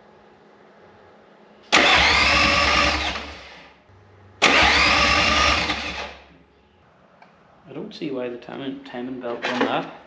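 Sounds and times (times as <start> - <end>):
diesel engine cranking on starter: 1.7 - 3.8, 4.4 - 6.3.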